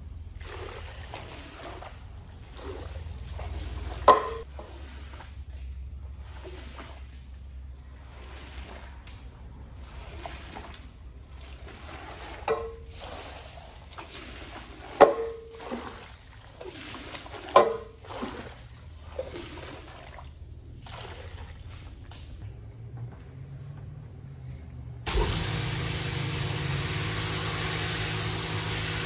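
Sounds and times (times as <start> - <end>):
squeegee swishing wet rug: 0.0 - 22.4.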